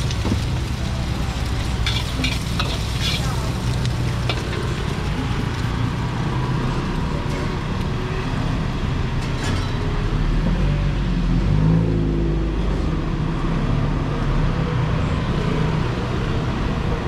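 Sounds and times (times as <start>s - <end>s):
egg frying in oil: 0.0s - 6.2s
gas burner roar: 0.0s - 9.3s.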